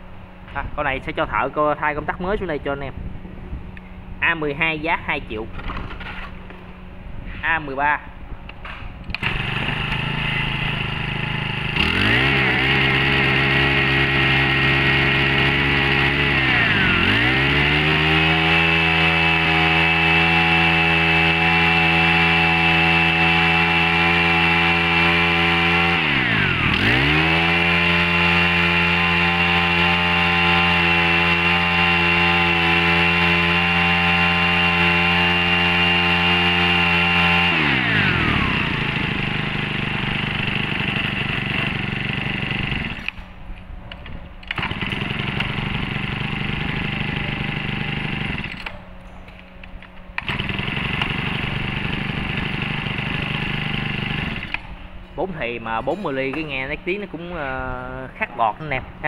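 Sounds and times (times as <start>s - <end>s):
brush-cutter engine revving: 9.1s - 43.2s, 44.5s - 48.8s, 50.2s - 54.8s.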